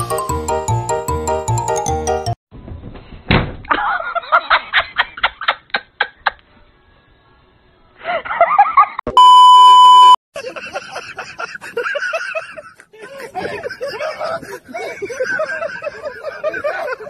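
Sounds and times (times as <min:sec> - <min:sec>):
test-tone beep: 0:09.1 - 0:10.2.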